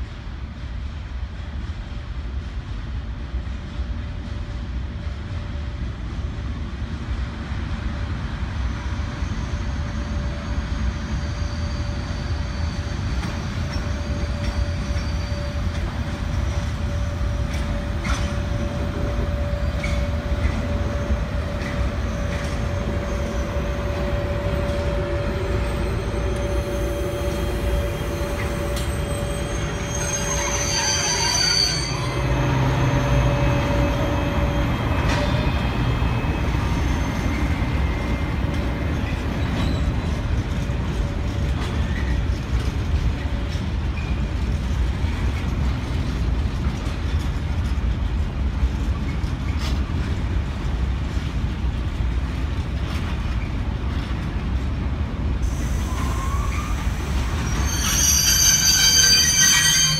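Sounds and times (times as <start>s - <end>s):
freight train wheels rumbling: 0.0s - 59.9s
high-pitched wheel squeal: 10.4s - 38.6s, 55.8s - 59.9s.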